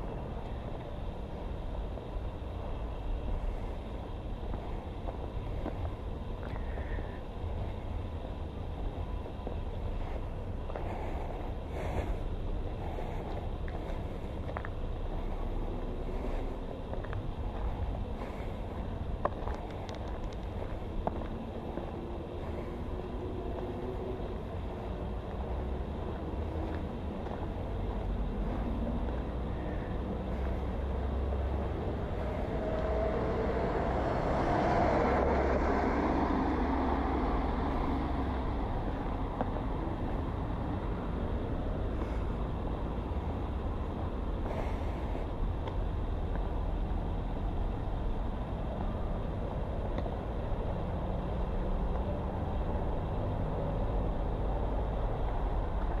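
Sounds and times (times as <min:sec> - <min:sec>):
steady low traffic rumble: 0:00.0 - 0:56.0
vehicle passing: 0:12.8 - 0:56.0.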